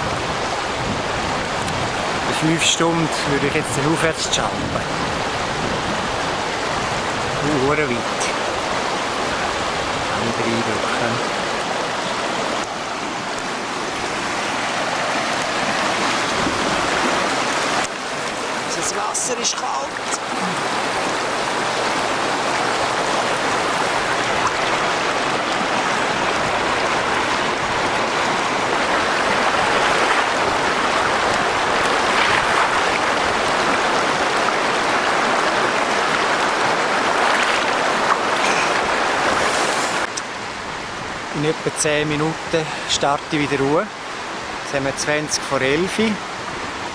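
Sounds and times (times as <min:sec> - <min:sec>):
creek rushing over rocks: 0:00.0 - 0:46.9
feet sloshing through water: 0:10.8 - 0:40.1.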